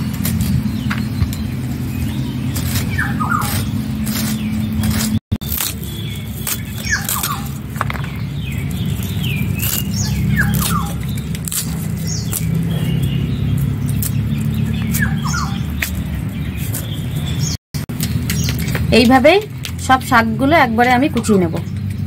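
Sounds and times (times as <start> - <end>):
steady low hum: 0.0 - 16.9
birds chirping: 0.0 - 22.0
leaves being chopped: 2.1 - 17.2.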